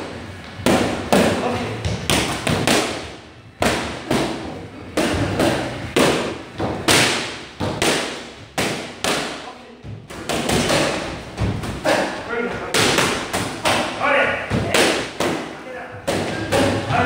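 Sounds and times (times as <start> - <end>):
boxing gloves hitting focus mitts: 0.5 - 9.4, 10.0 - 13.9.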